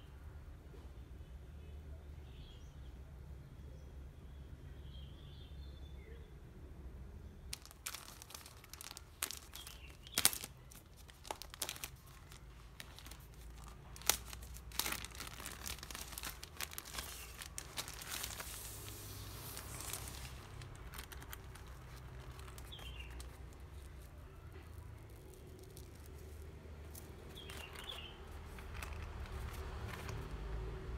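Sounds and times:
plastic bag tearing and crinkling: 7.5 - 24.1, 24.7 - 30.5
handling of a sleeve: 7.5 - 30.9.

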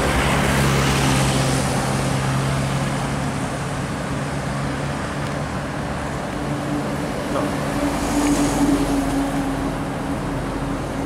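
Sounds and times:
truck engine drone: 0.0 - 11.0
tyre and traffic noise: 0.0 - 11.0.

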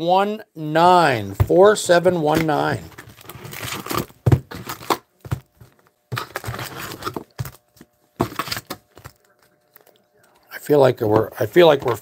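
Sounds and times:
foil packs crinkling: 2.3 - 9.4.

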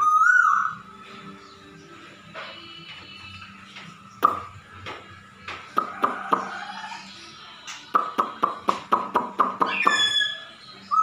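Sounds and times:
bird sharp call notes: 9.2 - 10.5.

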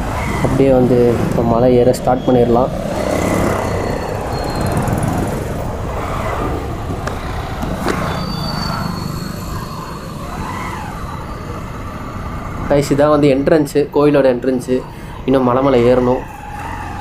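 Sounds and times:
passing traffic: 0.0 - 17.0
motorcycle engine running: 2.2 - 12.5.

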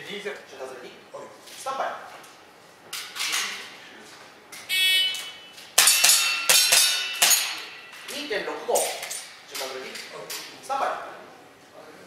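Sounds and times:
steel target plates ringing: 5.8 - 9.4.

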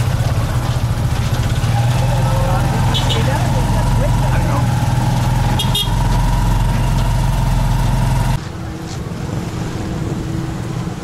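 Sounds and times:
motorcycle engine running: 0.0 - 8.4
street background: 0.0 - 11.0.

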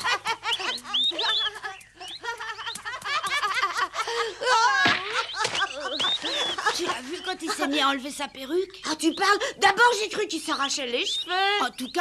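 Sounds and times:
boys laughing and whooping: 0.0 - 8.0.

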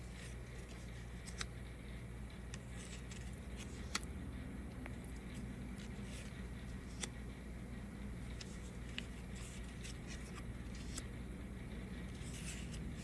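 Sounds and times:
low steady hum: 0.0 - 13.0
paper cards leafed through: 8.2 - 11.1, 12.0 - 13.0.

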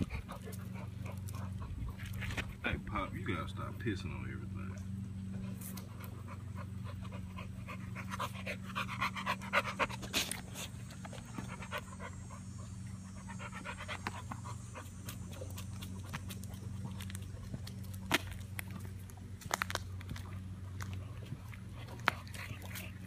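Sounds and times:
dog panting: 0.0 - 2.6, 5.3 - 18.0, 20.9 - 23.0.

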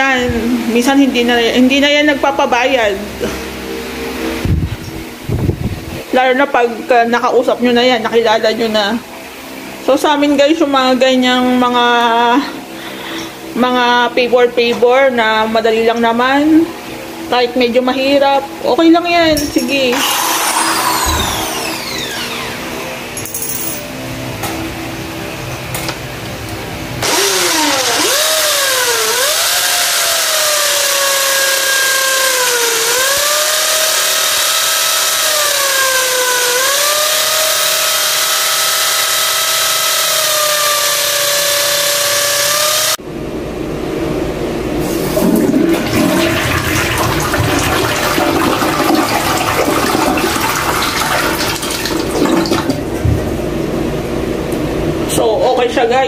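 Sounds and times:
electric drill boring into tile: 19.9 - 22.7, 27.0 - 43.0
toilet flushing: 44.9 - 53.3.

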